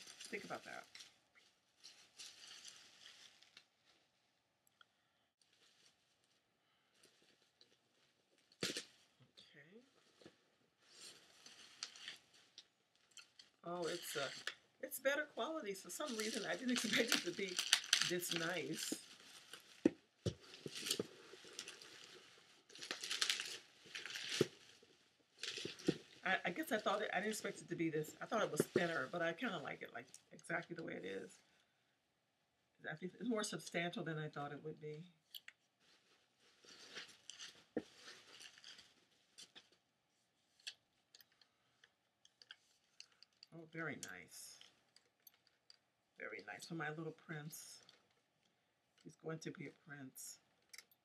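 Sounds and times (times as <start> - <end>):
plastic wrapping crinkling: 0.0 - 4.2, 5.4 - 9.2, 10.0 - 30.8, 35.3 - 46.7.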